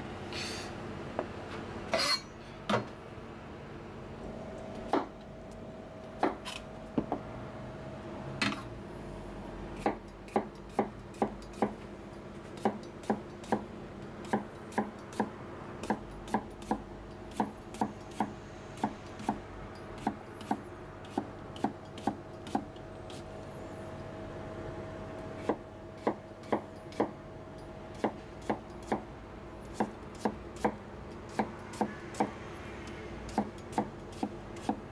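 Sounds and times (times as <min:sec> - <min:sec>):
knife chopping on cutting board: 0:04.9 - 0:05.1, 0:06.2 - 0:06.5.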